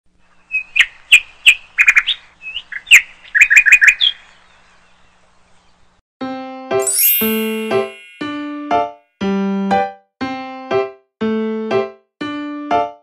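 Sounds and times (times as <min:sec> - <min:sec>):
electric piano music: 0:06.7 - 0:08.9.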